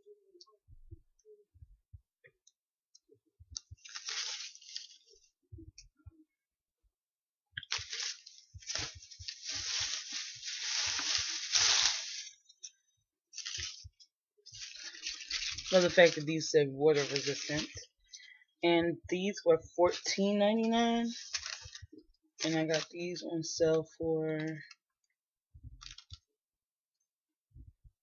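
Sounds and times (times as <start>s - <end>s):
artificial flowers rustling: 3.6s - 5.4s, 7.6s - 18.3s, 19.2s - 23.2s.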